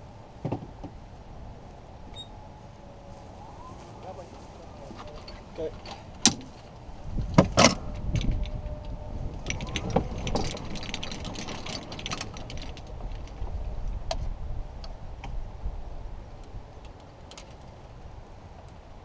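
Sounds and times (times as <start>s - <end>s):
golf cart rumbling: 0.0s - 19.0s
light clicks and rattles: 4.9s - 15.4s, 16.4s - 17.9s.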